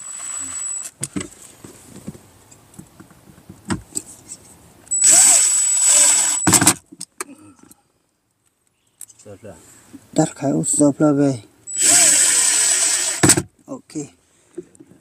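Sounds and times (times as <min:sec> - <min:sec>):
cordless drill running: 0:00.0 - 0:00.9, 0:05.0 - 0:06.5, 0:11.7 - 0:13.3.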